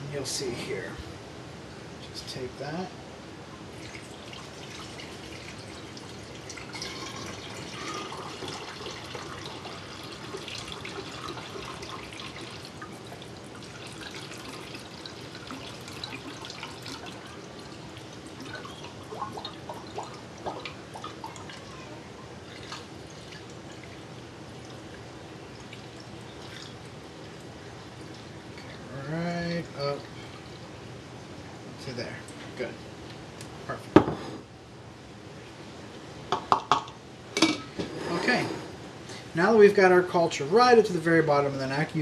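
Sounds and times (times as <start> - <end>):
liquid trickling through funnel: 3.7 - 29.0.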